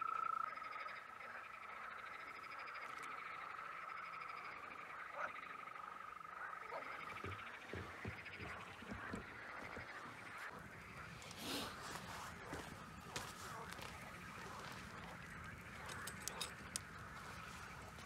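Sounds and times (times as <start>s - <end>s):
chorus of frogs calling: 0.0s - 18.0s
faint knocks: 6.9s - 11.4s.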